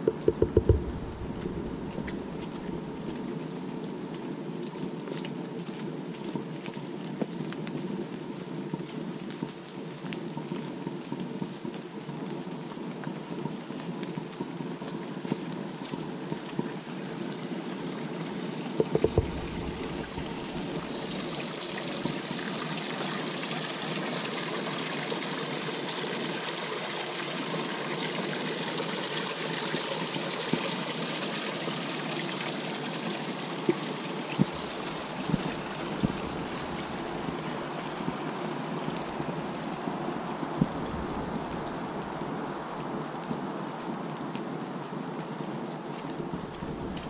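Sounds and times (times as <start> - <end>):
sharp taps: 0.0 - 2.9
rain falling through woodland: 0.0 - 47.0.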